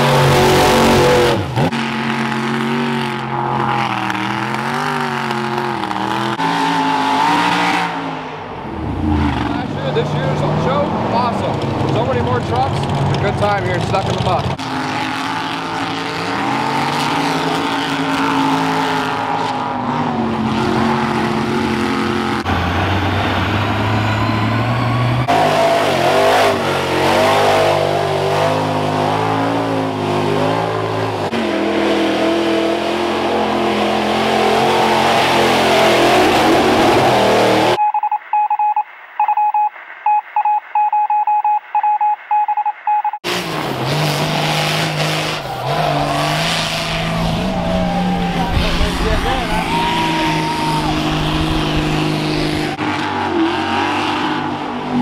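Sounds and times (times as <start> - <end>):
truck engines revving hard: 0.0 - 37.8, 43.1 - 55.0
beeping tone: 37.8 - 43.2.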